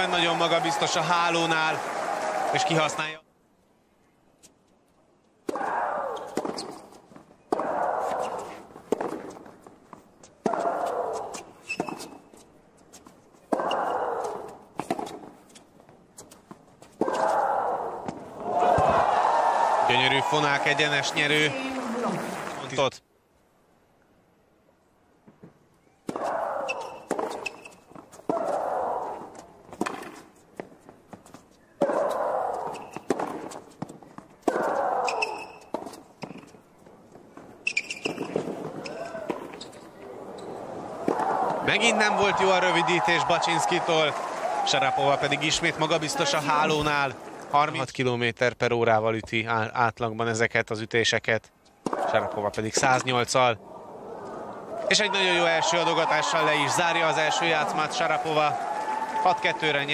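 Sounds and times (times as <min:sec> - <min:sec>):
racket striking tennis ball: 0:05.4 - 0:06.8, 0:07.5 - 0:09.5, 0:26.0 - 0:30.7, 0:31.8 - 0:36.5, 0:41.0 - 0:41.6
ball bouncing: 0:31.8 - 0:36.5
tennis racquet hitting ball: 0:31.8 - 0:36.5, 0:40.4 - 0:41.7.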